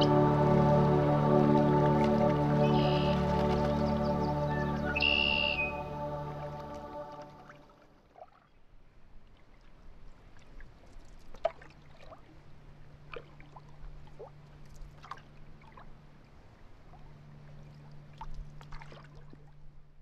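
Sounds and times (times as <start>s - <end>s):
low steady hum: 0.0s - 8.0s, 8.7s - 20.0s
small water plops: 6.7s - 8.6s, 10.3s - 12.3s, 13.1s - 15.9s, 16.9s - 19.6s.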